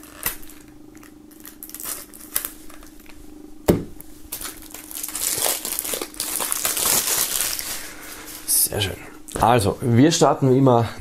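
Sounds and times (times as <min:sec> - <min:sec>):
plastic film crinkling: 0:00.0 - 0:03.2, 0:04.3 - 0:08.8.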